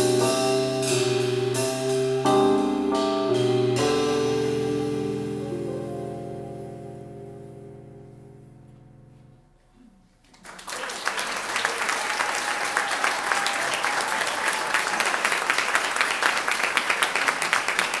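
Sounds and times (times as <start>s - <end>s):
audience applauding: 10.2s - 18.0s
close hands clapping: 10.2s - 18.0s.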